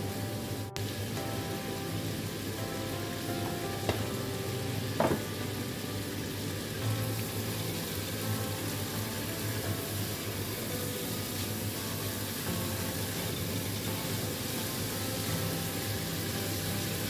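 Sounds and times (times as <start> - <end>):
vegetables sizzling in a wok: 0.0 - 17.0
short knock: 5.0 - 5.4.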